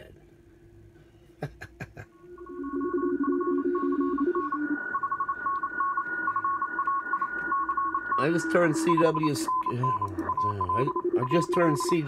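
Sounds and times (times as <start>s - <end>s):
morse code beeps: 2.3s - 12.0s
steady radio tone: 2.4s - 12.0s.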